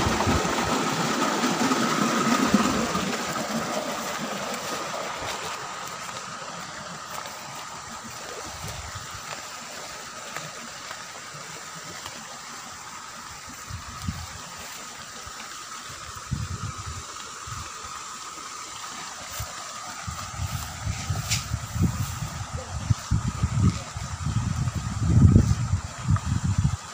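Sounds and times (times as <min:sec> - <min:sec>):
water splashing: 0:00.0 - 0:16.2
running water hissing: 0:00.0 - 0:26.9
footsteps on dirt path: 0:04.0 - 0:11.0, 0:19.3 - 0:24.0.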